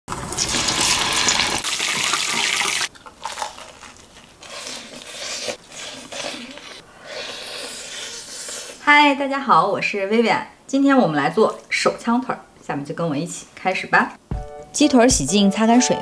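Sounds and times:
frying sizzle in hot oil: 0.1s - 2.9s
crunching and chewing: 2.9s - 8.8s.

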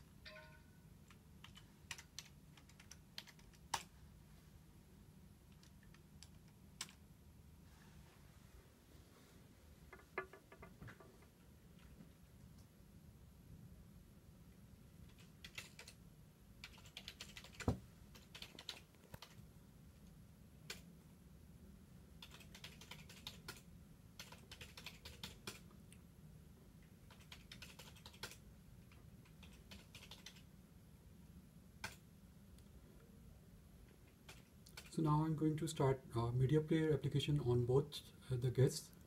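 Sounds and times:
low steady hum: 0.0s - 39.0s
typing on computer keyboard: 1.1s - 3.9s, 5.5s - 7.0s, 15.1s - 16.0s, 16.6s - 19.4s, 22.2s - 25.7s, 27.1s - 30.5s, 31.8s - 32.0s, 34.2s - 35.0s.

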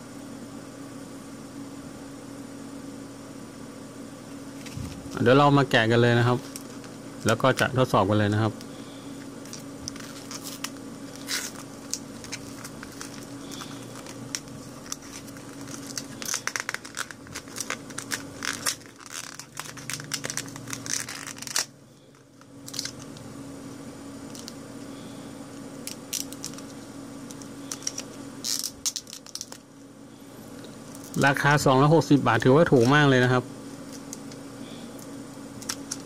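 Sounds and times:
blister pack crinkling and tearing: 6.3s - 7.8s, 9.4s - 23.2s, 24.2s - 24.6s, 25.8s - 29.8s, 30.9s - 31.4s, 35.0s - 36.0s.

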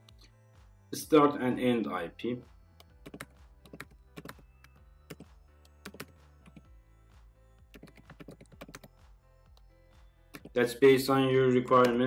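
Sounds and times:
faint background music: 0.0s - 12.0s
keyboard keystrokes clicking: 3.0s - 4.4s, 5.1s - 6.6s, 7.7s - 8.9s.

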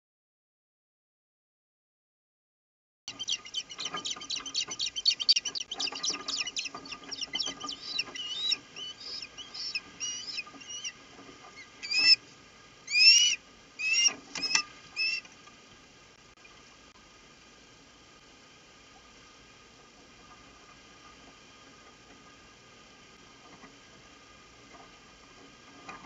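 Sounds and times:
sharp high bird chirps: 3.1s - 10.9s, 12.9s - 15.2s
upward sweeping whistled calls: 3.1s - 10.9s, 11.8s - 12.2s, 12.9s - 15.3s.

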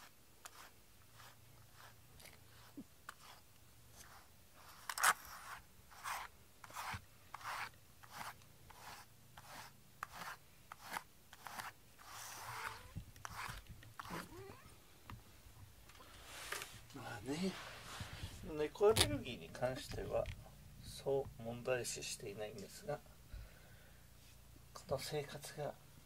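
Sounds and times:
brush raking through fur: 0.0s - 14.4s, 16.1s - 20.2s.

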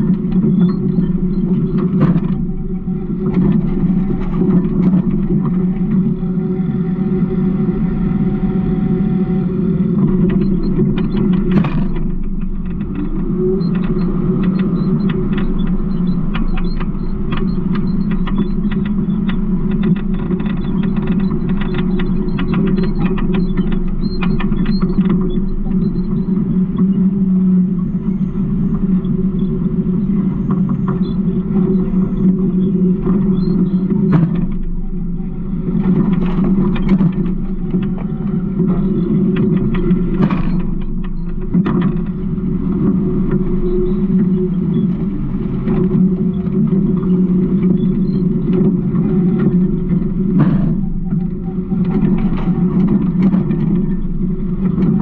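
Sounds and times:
short clicks and creaks: 10.0s - 27.1s, 28.8s - 55.0s
garbage truck droning: 27.2s - 55.0s.

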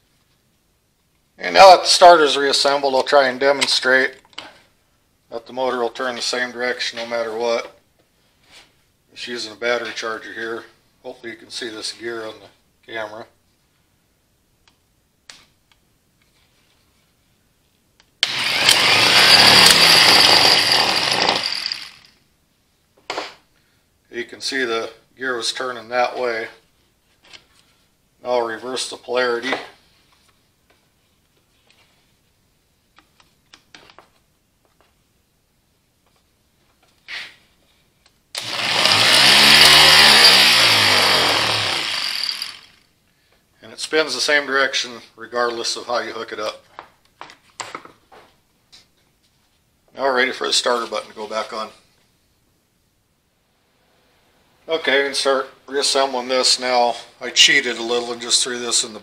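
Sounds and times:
starter motor whining: 18.2s - 22.1s, 38.4s - 42.8s.

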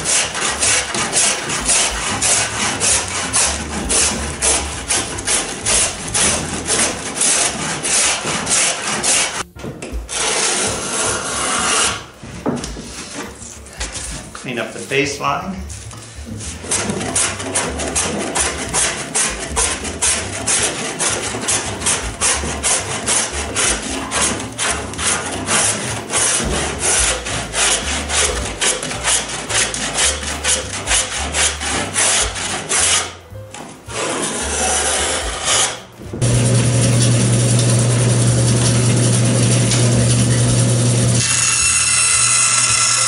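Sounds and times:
block plane shaving wood: 0.0s - 9.4s, 10.1s - 12.2s, 15.6s - 43.0s
bandsaw motor humming: 36.2s - 43.0s.

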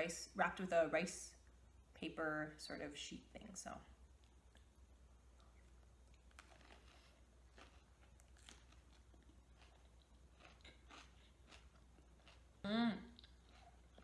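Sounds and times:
low steady hum: 0.0s - 14.0s
chewing with soft crunches: 4.1s - 14.0s.

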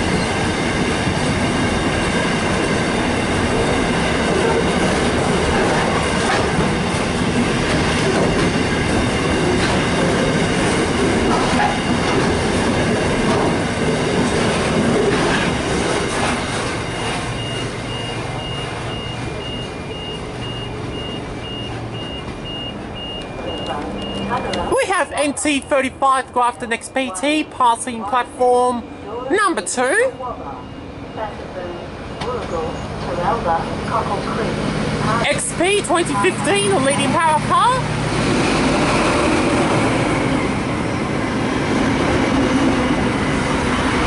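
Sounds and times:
train wagons rumbling and clattering: 0.0s - 44.0s
high beeping: 16.8s - 33.0s.

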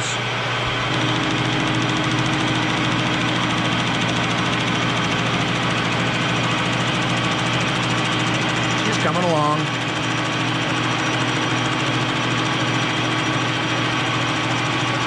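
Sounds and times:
lathe motor and gear hum: 0.0s - 15.0s
lathe tool cutting metal: 0.0s - 15.0s.

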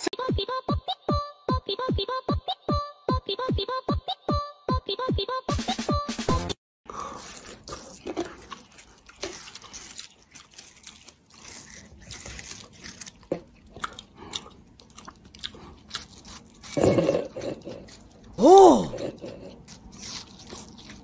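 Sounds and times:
crunching and chewing watermelon: 6.9s - 21.0s.

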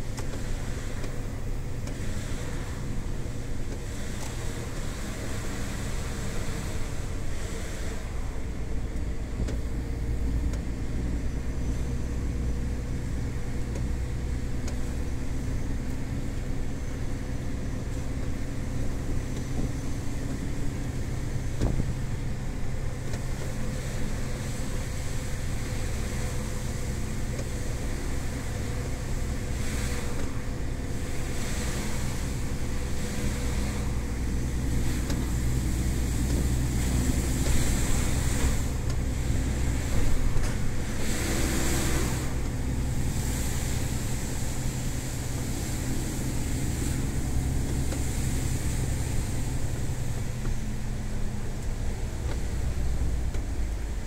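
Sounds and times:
truck diesel engine running: 0.0s - 54.0s
click: 9.4s - 9.6s.

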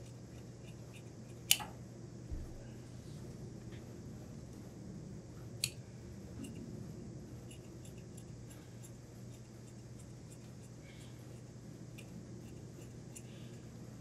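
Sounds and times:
shears snipping fabric: 0.0s - 1.7s
steady low hum: 0.0s - 14.0s.

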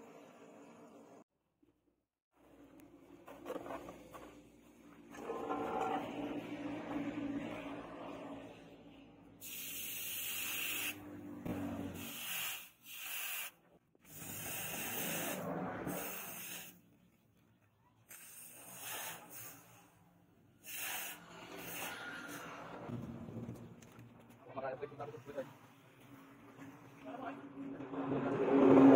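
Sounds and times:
hot blade hissing in water: 20.6s - 22.4s.

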